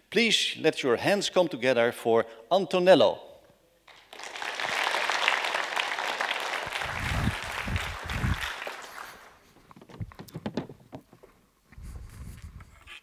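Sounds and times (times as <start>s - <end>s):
audience applauding: 3.9s - 9.5s.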